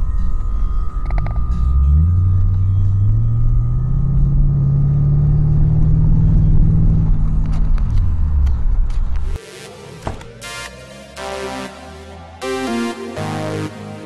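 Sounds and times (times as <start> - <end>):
car engine accelerating: 0.0 - 9.4
road rumble inside car: 0.0 - 9.4.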